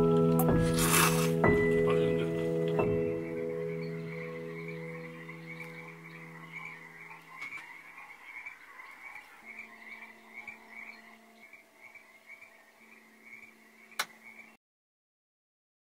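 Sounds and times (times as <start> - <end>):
soft music: 0.0 - 14.6
frogs trilling: 2.8 - 14.6.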